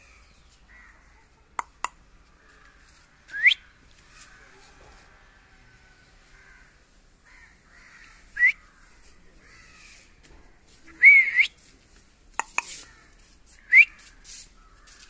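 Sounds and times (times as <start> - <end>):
sharp clicks: 1.6 - 2.0, 12.4 - 12.8.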